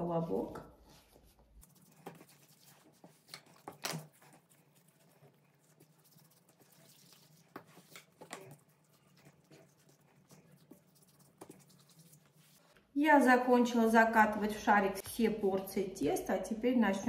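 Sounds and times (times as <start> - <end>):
hands tapping and rubbing dough: 7.0 - 12.6.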